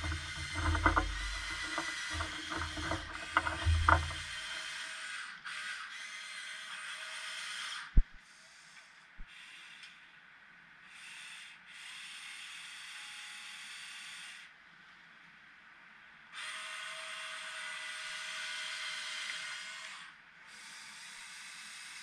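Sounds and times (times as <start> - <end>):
small knock: 0.0 - 4.4
faint steady whine: 0.0 - 4.6.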